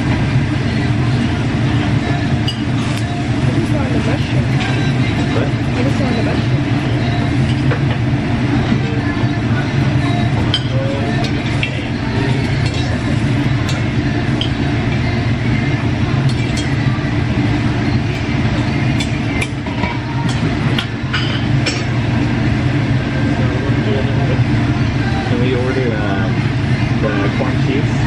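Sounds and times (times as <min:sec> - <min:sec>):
restaurant rumble: 0:00.0 - 0:28.0
utensils clinking dishes: 0:02.4 - 0:06.4, 0:10.1 - 0:14.7, 0:16.2 - 0:16.8, 0:18.9 - 0:22.0.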